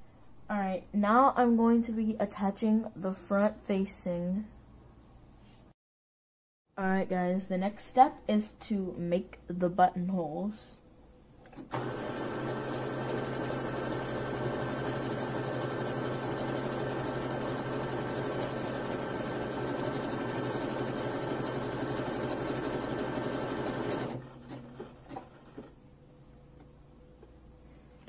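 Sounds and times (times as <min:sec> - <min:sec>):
sewing machine running: 0:11.5 - 0:25.7.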